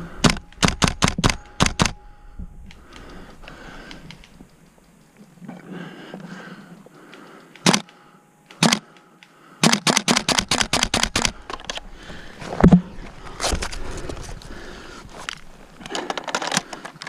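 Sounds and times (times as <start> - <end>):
airsoft gun shots: 7.6 - 7.9, 8.6 - 8.9, 9.6 - 11.4.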